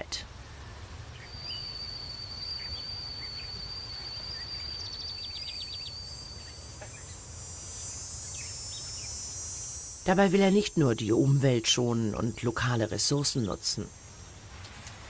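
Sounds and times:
hissing insect buzz: 0:00.0 - 0:15.0
insect chirps: 0:00.0 - 0:15.0
insects trilling: 0:00.0 - 0:15.0.

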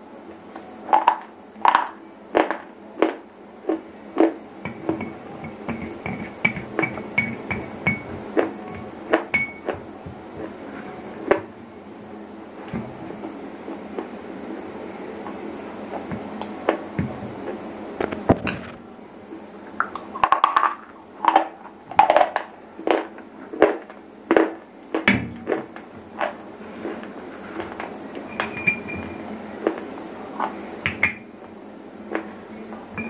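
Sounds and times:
ceramic clinking: 0:04.6 - 0:09.8, 0:27.6 - 0:29.3, 0:30.8 - 0:31.3.

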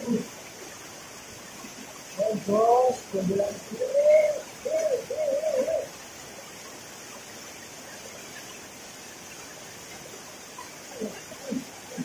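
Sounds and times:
waterfall pouring into pool: 0:00.0 - 0:12.0
wavering hooting call: 0:03.4 - 0:05.9.

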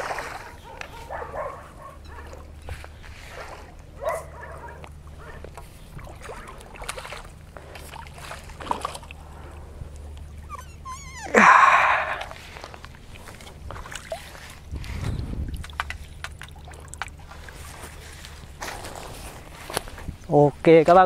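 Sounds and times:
fish thrashing at water surface: 0:00.0 - 0:00.8, 0:06.0 - 0:09.6, 0:11.4 - 0:19.6.

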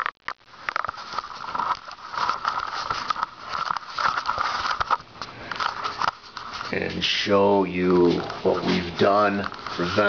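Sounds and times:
mid-pitched whine: 0:00.0 - 0:10.0
camera handling clicks and rubs: 0:00.6 - 0:06.7.

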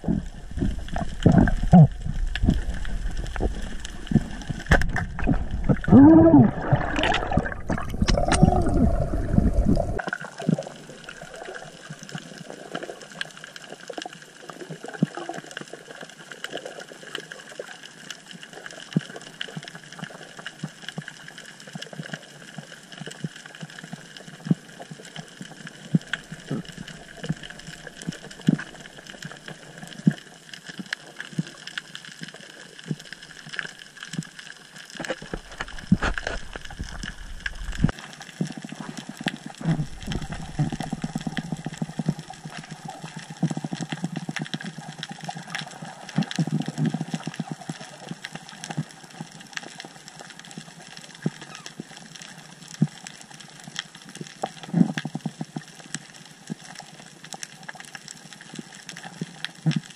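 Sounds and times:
low rush of moving water: 0:00.0 - 0:12.8, 0:35.0 - 0:43.4
sharp clicks and crackles: 0:00.0 - 0:59.9.

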